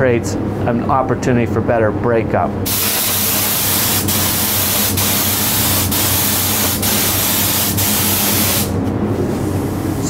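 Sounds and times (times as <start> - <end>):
spray gun hissing: 2.7 - 8.8.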